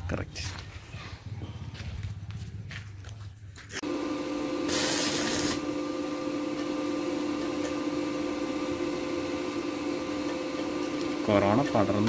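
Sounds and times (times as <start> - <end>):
welding machine humming: 3.8 - 12.0
welding arc hissing crackle: 4.6 - 5.7.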